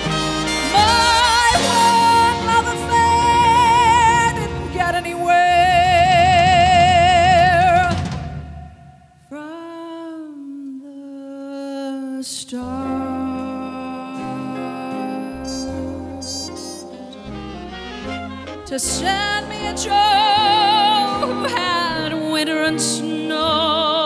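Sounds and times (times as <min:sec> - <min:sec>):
big band jazz ballad: 0:00.0 - 0:08.6, 0:12.6 - 0:24.0
woman singing with vibrato: 0:00.6 - 0:17.0, 0:18.6 - 0:24.0
solo melodic line: 0:12.6 - 0:23.8.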